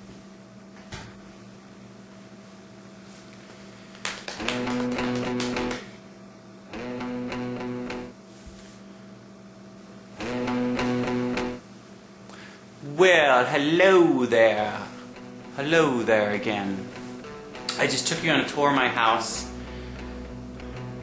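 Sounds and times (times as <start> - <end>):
steady low hum: 0.0 - 21.0
strummed guitar chords: 4.4 - 5.8, 6.7 - 8.1, 10.2 - 11.6, 13.6 - 21.0.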